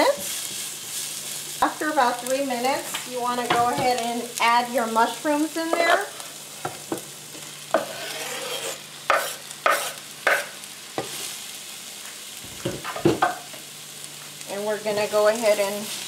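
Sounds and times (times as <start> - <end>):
vegetables sizzling in pan: 0.0 - 16.0
knocks and clatters from cutting board: 12.5 - 13.4.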